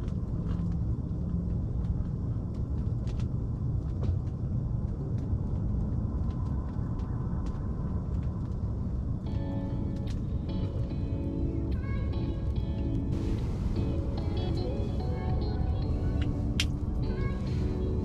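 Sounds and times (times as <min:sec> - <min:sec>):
faint clicks and ticks: 0:00.0 - 0:13.1
steady low rumble: 0:00.0 - 0:18.0.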